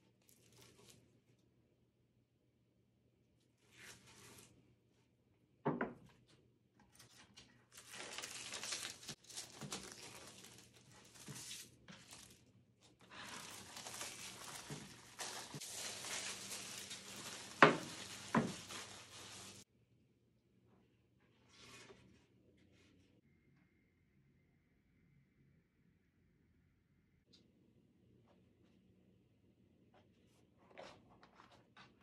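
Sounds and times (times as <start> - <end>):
plastic shrink wrap crinkling: 0.2 - 1.0, 7.5 - 19.6.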